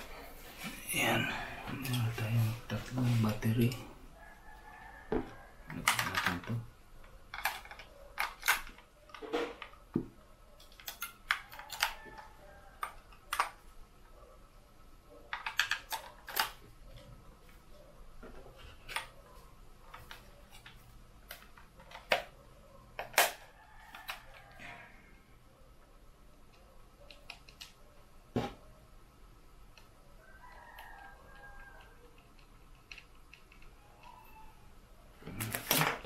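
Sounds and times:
plastic clicks and clacks: 5.7 - 13.6, 19.9 - 24.6.

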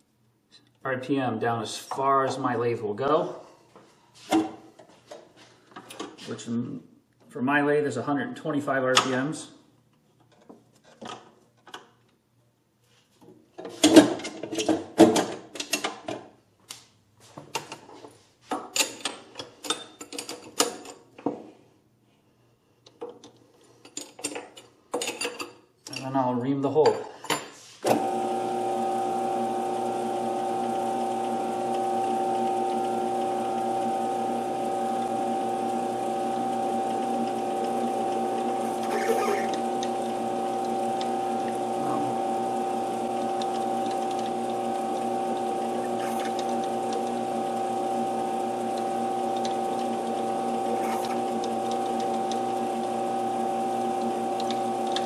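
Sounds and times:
metal lathe humming: 28.0 - 55.0.

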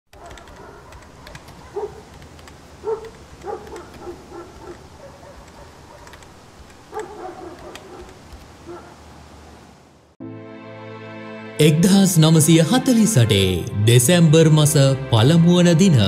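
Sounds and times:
dog barking: 0.1 - 2.2, 2.8 - 6.2, 6.9 - 9.1.

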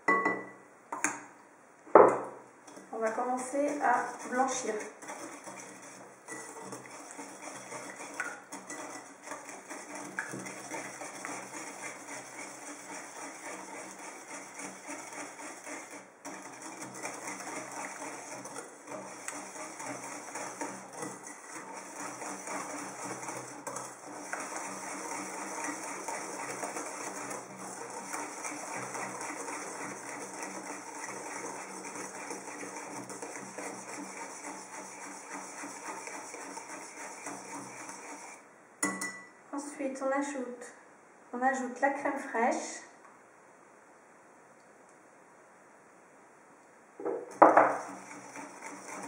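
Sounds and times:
whisk clattering in bowl: 2.6 - 39.3, 47.3 - 49.0.

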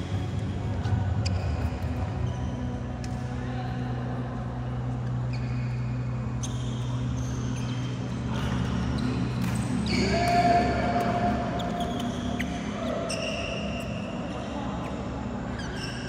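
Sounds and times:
steady low hum: 0.0 - 16.0
shoes squeaking on floor: 5.0 - 10.3, 11.2 - 16.0
rackets striking shuttlecock: 9.2 - 12.6.

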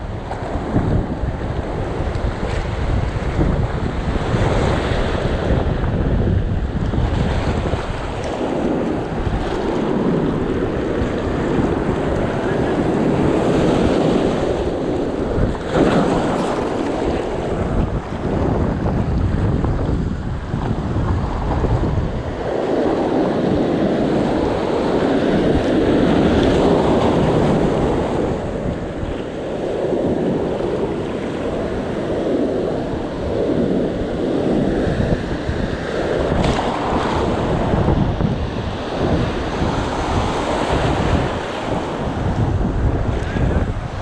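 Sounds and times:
ocean surf breaking: 0.0 - 44.0
wind buffeting microphone: 0.0 - 44.0.

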